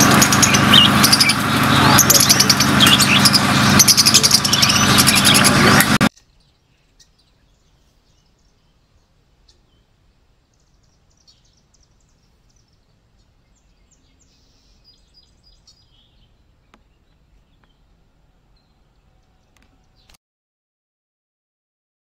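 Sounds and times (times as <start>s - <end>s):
starling chirps and whistles: 0.2s - 9.8s.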